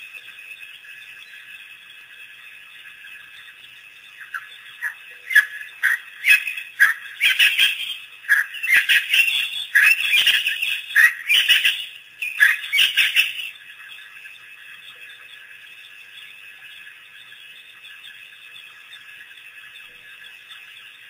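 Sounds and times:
wild dogs chirping: 4.2 - 13.5.

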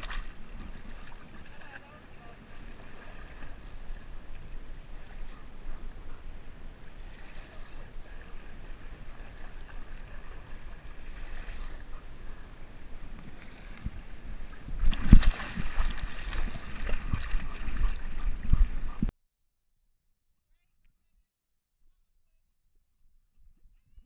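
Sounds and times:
creek water rumbling: 0.0 - 19.1
wind: 0.0 - 19.1.

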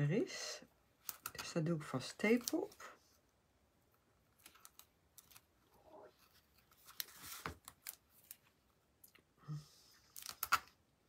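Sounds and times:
tape and cardstock crinkling: 1.0 - 2.9, 4.4 - 5.6, 6.2 - 8.6, 10.1 - 10.8.

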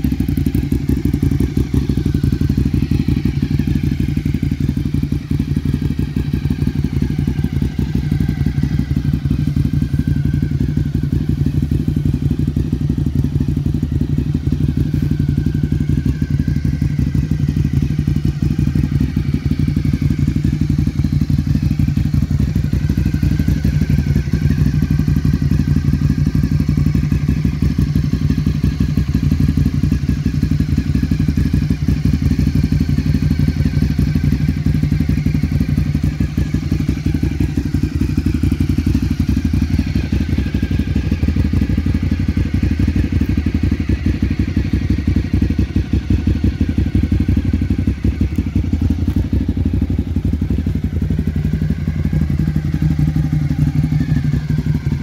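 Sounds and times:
motorcycle engine idling: 0.0 - 55.0.

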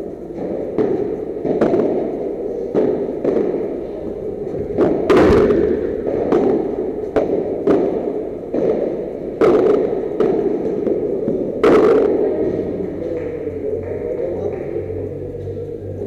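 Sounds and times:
rackets striking ball: 0.0 - 15.7
steady background noise: 0.0 - 16.0
ball bouncing: 0.3 - 15.5
loud crash: 4.5 - 8.8.

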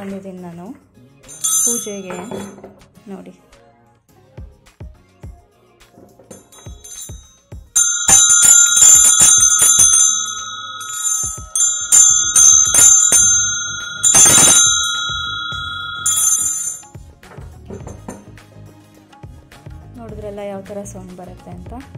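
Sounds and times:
hand bells ringing: 1.3 - 2.6, 6.3 - 17.0.

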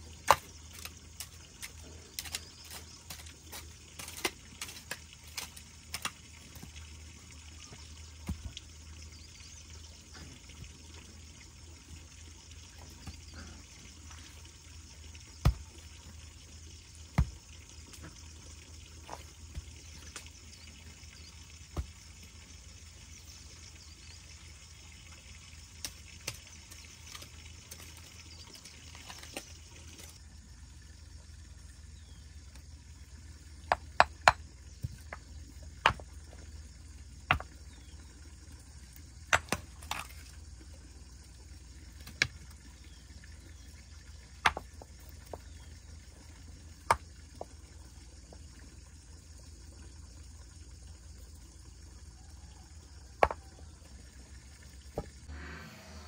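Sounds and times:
hoe digging: 0.2 - 6.2
stones knocking and scraping in soil: 0.2 - 6.8, 7.7 - 8.6, 15.3 - 16.2, 17.0 - 18.3, 19.0 - 20.6, 21.2 - 22.3, 25.8 - 30.2, 33.5 - 38.0, 39.2 - 40.4, 41.9 - 42.6, 44.2 - 45.6, 46.8 - 47.6, 53.2 - 53.5.

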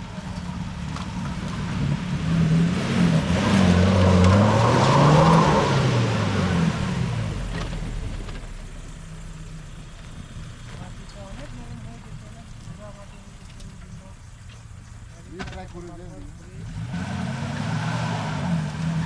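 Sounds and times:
vehicle engine revving: 0.0 - 19.0.

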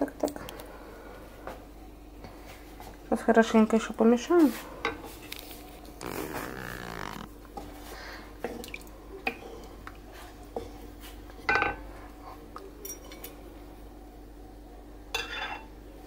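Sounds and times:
liquid sloshing and dripping: 8.4 - 10.2.

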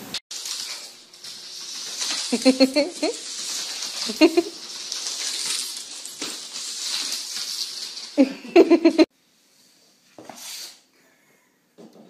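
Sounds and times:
cat claws scratching wooden floor: 0.3 - 8.2.

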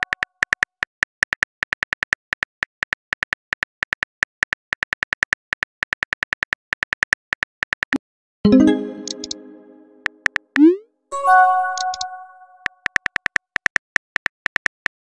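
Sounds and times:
message sent sound: 8.5 - 12.7
phone keyboard typing clicks: 8.9 - 10.4, 11.5 - 15.0.

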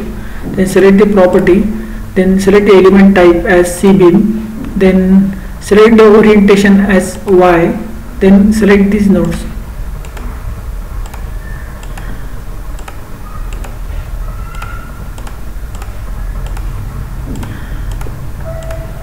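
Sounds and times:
low background hum: 0.0 - 19.0
computer mouse clicks: 9.2 - 10.3, 11.0 - 18.9.

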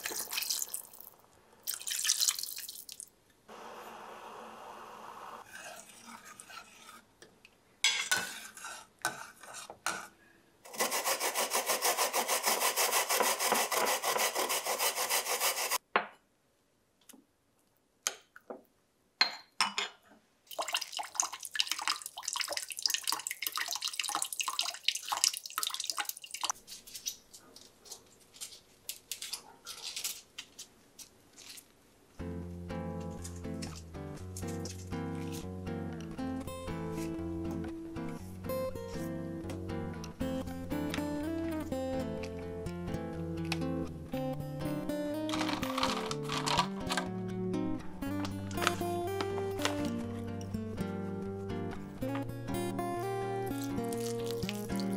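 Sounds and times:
wooden spoon scraping in cup: 5.5 - 7.1, 8.1 - 10.1
fast rubbing strokes: 10.7 - 15.8.

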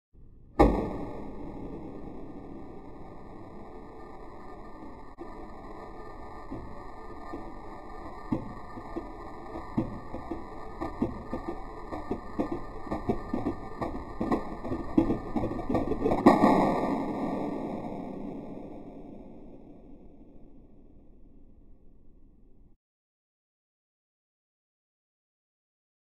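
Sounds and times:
loud buzzing burst: 0.6 - 19.6.

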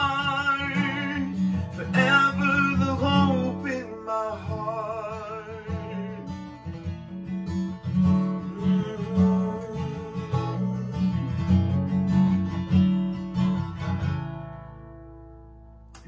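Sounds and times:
strummed guitar: 0.0 - 16.0
bass: 5.8 - 16.0.

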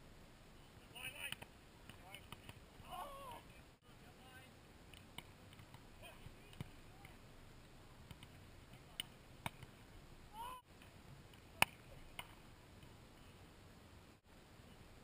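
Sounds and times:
volleyball slapped by hands: 8.0 - 9.7.

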